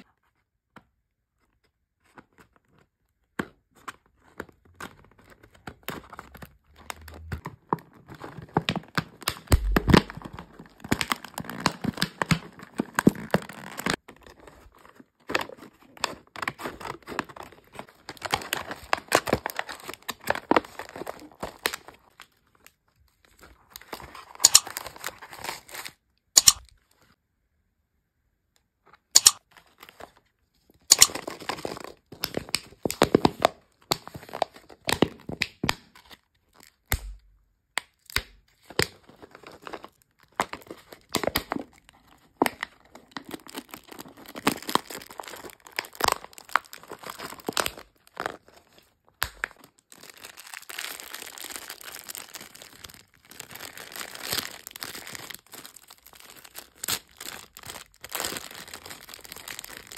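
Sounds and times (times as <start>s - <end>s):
plastic wrapper crackling: 4.2s - 27.0s, 29.2s - 37.0s, 37.9s - 59.9s
plastic bag crinkling: 4.9s - 14.8s, 23.3s - 26.6s, 30.9s - 33.3s, 39.0s - 59.9s.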